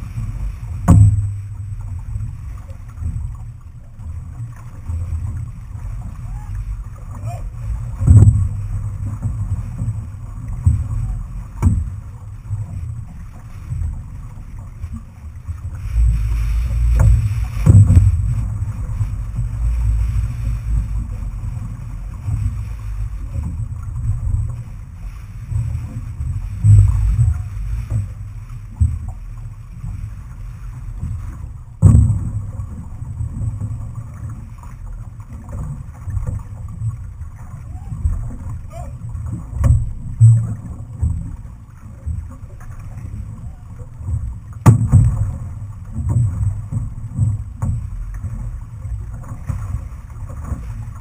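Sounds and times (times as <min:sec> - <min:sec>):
sharp knocks: 0:00.8 - 0:01.3, 0:44.6 - 0:45.3.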